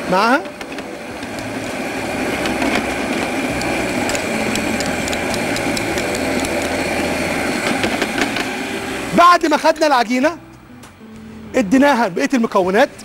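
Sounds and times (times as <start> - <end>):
stand mixer motor humming: 0.0 - 9.2.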